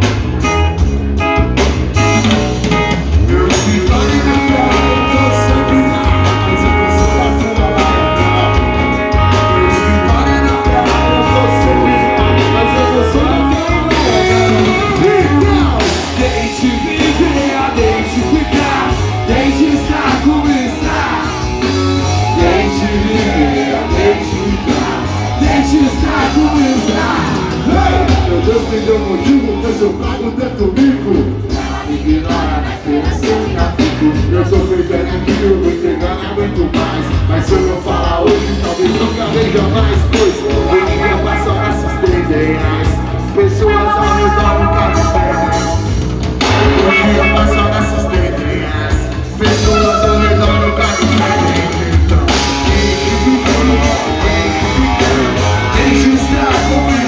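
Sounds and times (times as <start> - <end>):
drums: 0.0 - 57.0
electric guitar: 0.0 - 57.0
man singing: 2.1 - 57.0.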